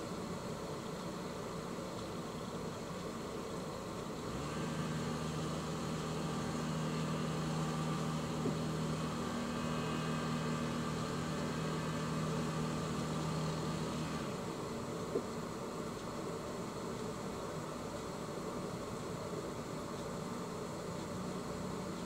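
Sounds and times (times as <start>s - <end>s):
boat engine running: 4.3s - 14.1s.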